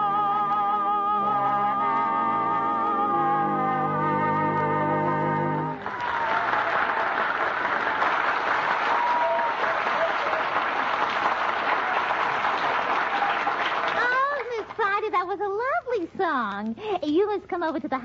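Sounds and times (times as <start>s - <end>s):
studio audience applause: 5.8s - 14.9s.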